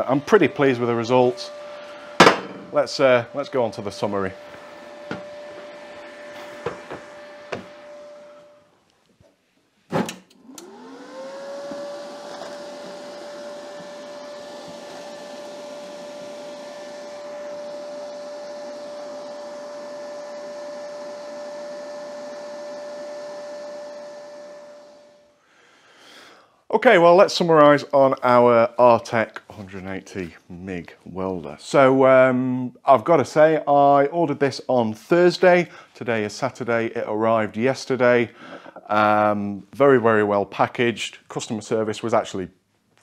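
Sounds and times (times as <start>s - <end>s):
welder cooling fan whine: 0.0s - 8.8s, 10.3s - 25.4s.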